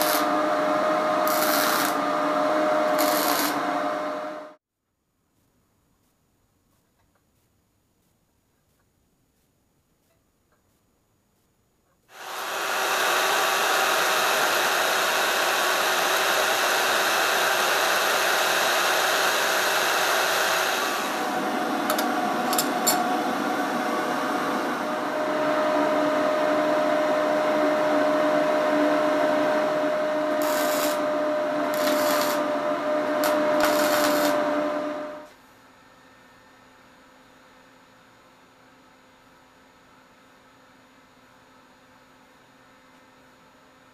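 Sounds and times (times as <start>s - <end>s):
band saw cutting metal: 0.0s - 4.5s, 12.2s - 35.3s.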